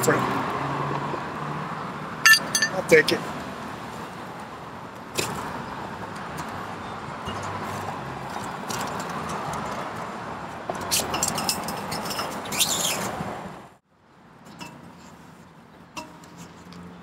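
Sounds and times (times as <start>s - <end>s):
road traffic: 0.0s - 17.0s
magnet clinking against railing: 2.2s - 2.9s.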